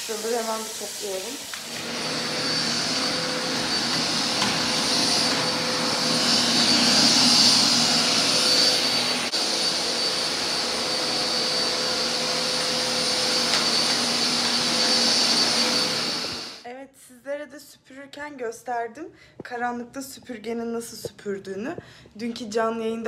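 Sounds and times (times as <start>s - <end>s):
vacuum cleaner running: 0.0s - 16.6s.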